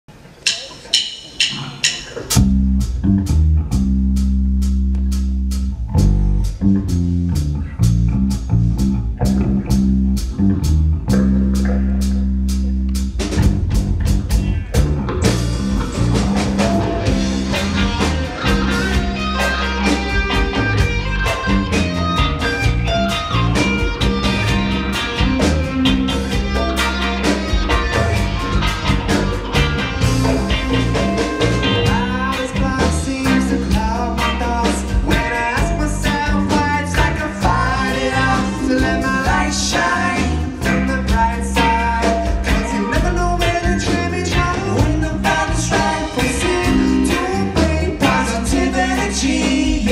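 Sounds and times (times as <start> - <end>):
drum beat: 0.4 - 3.1, 13.2 - 34.0, 34.6 - 49.9
bass guitar line: 2.3 - 49.9
electric guitars: 4.9 - 49.9.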